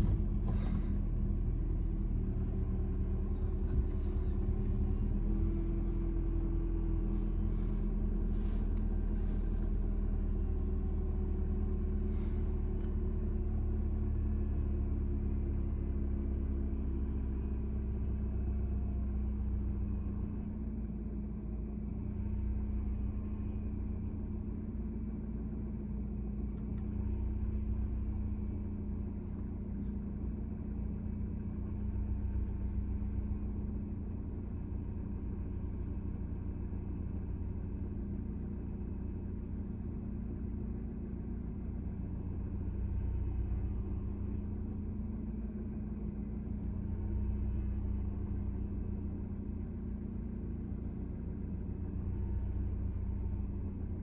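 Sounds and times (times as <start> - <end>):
car engine idling: 0.0 - 54.0.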